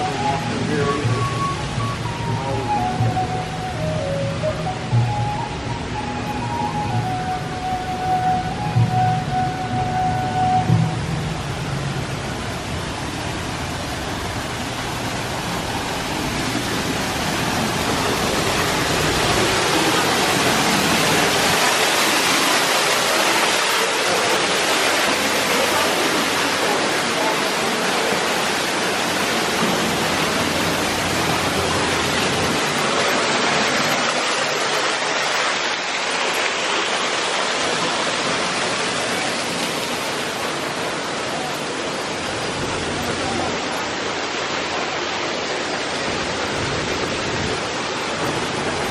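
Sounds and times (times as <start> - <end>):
rushing water: 0.0 - 48.9.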